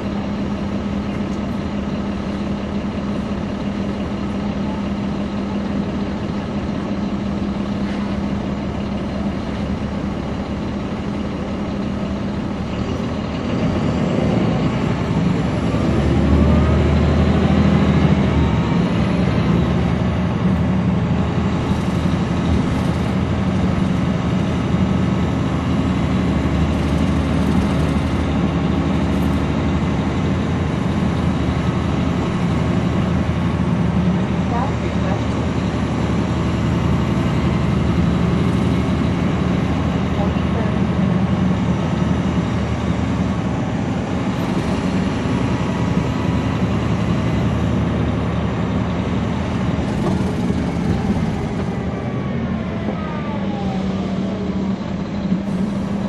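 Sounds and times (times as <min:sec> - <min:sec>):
bus diesel engine: 0:00.0 - 0:56.0.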